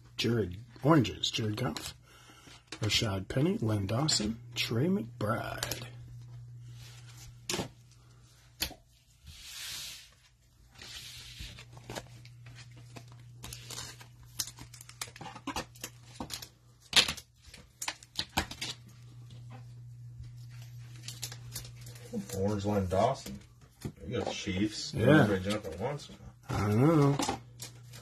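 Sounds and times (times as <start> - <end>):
cards sliding and rustling: 6.6 - 16.5.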